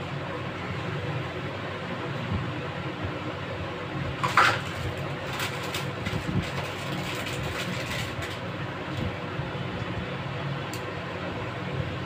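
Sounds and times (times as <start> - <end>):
steady low hum: 0.0 - 12.0
plastic packaging crinkling: 4.2 - 8.5.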